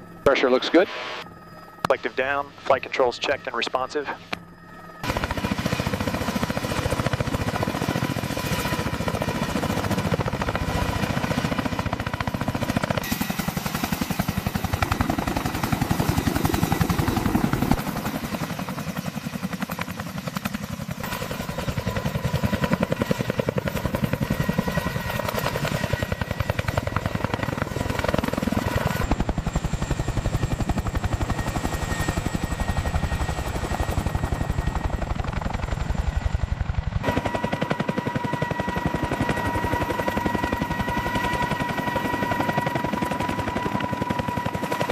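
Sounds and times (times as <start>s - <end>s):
turbine whine: 0.0s - 19.2s
helicopter rotor beat: 0.0s - 44.9s.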